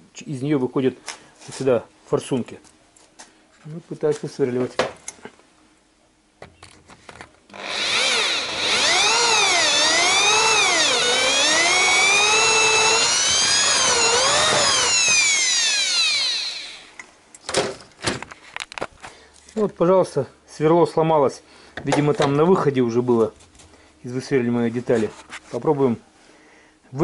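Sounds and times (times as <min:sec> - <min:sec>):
electric drill whining: 0:07.5 - 0:17.0.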